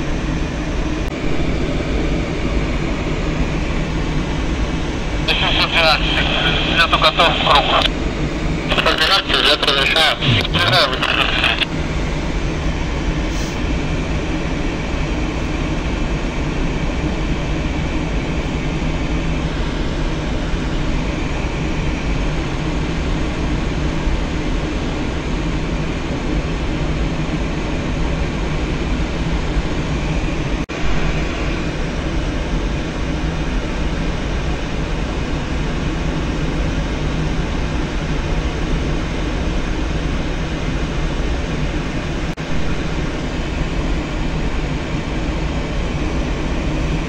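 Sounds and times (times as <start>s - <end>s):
low hum: 1.0s - 11.7s, 30.7s - 32.3s, 42.4s - 44.7s
rush of air over canopy: 1.1s - 3.8s, 5.3s - 7.9s, 8.6s - 11.7s.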